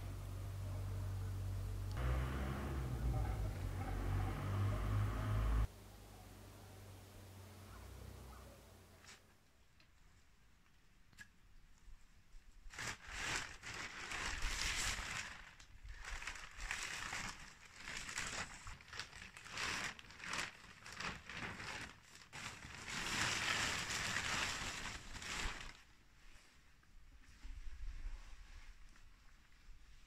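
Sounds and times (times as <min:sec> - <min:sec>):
plastic sheeting crinkling: 0:12.5 - 0:30.0.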